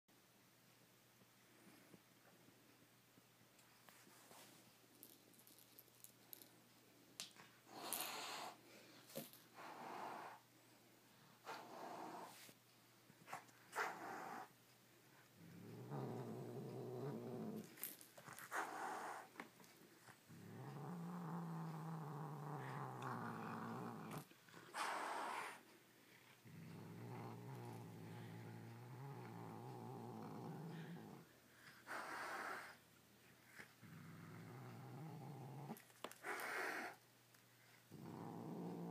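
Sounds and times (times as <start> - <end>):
cat growling: 13.7 - 14.5, 15.4 - 19.3, 20.3 - 32.8, 33.8 - 37.0, 37.9 - 38.9
cat hissing: 24.7 - 25.6.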